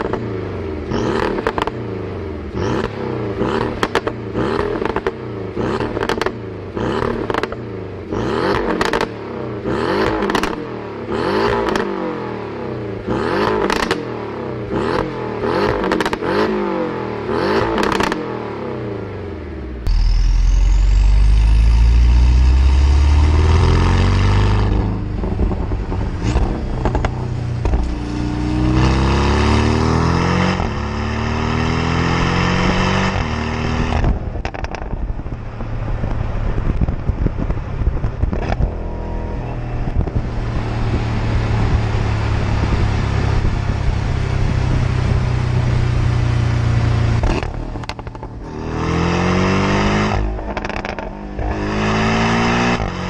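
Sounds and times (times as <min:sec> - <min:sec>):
sports car exhaust accelerating: 0:00.0 - 0:53.0
exhaust cracks: 0:19.8 - 0:29.0, 0:33.1 - 0:38.9, 0:47.1 - 0:48.5, 0:50.1 - 0:51.6.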